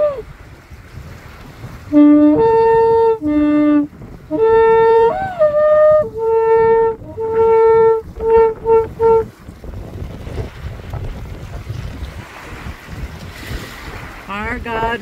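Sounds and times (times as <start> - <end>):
shofar blasts: 1.9 - 9.3.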